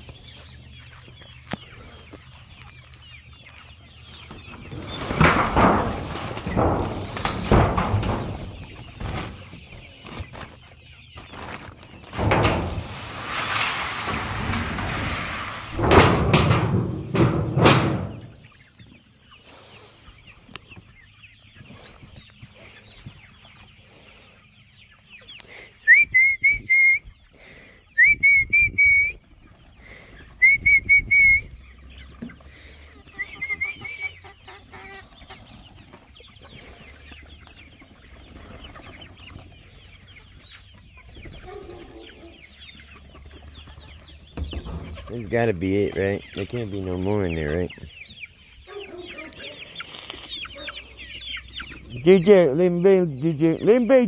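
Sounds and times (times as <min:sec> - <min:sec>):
chickens clucking: 0:00.0 - 0:54.0
loud clattering knocks: 0:04.8 - 0:08.8, 0:12.1 - 0:13.0, 0:15.7 - 0:18.5.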